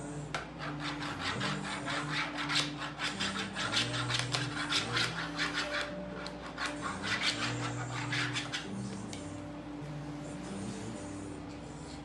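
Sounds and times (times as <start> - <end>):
hand rubbing plastic toy: 0.3 - 9.2.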